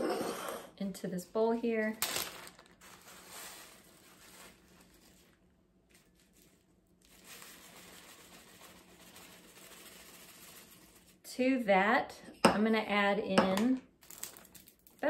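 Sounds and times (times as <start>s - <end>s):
crushed chips pouring into bowl: 2.0s - 5.4s, 6.0s - 11.2s, 14.0s - 15.0s
plastic bag crinkling: 2.0s - 11.2s, 14.0s - 15.0s.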